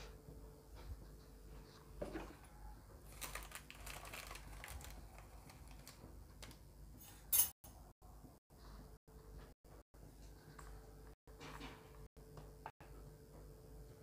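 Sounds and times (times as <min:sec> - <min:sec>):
kitchen utensils clinking: 0:07.0 - 0:07.6.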